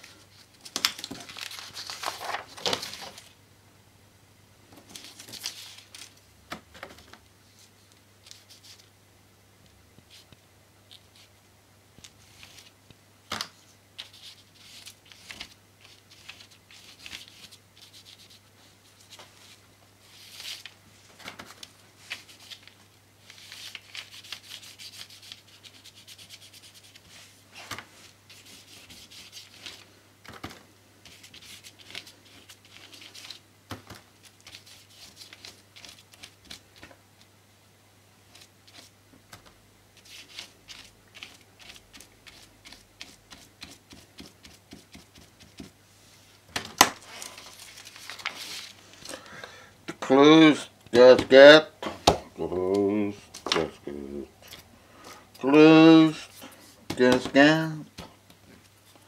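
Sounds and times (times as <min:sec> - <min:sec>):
paintbrush scrubbing on paper: 0:15.9 - 0:18.8, 0:23.4 - 0:27.4, 0:28.0 - 0:29.8, 0:40.0 - 0:45.7.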